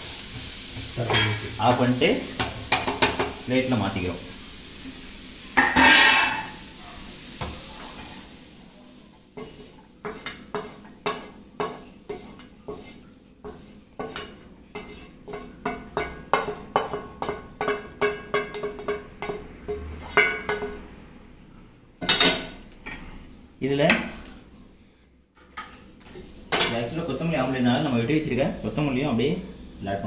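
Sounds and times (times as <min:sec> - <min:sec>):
faint sizzle: 0:00.0 - 0:30.0
spoon scraping and tapping pan: 0:02.3 - 0:03.4, 0:09.4 - 0:20.9.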